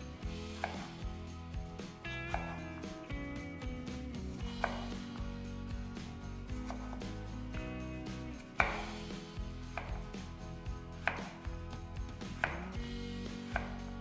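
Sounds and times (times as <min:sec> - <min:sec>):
knife chopping on wooden board: 0:00.4 - 0:01.2, 0:02.2 - 0:03.0, 0:04.4 - 0:05.3, 0:06.4 - 0:07.8, 0:08.4 - 0:10.3, 0:10.9 - 0:14.0.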